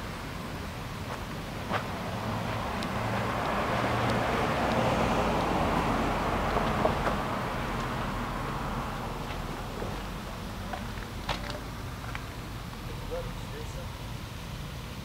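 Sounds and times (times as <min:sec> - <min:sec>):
vehicle passing by: 0:01.1 - 0:11.0.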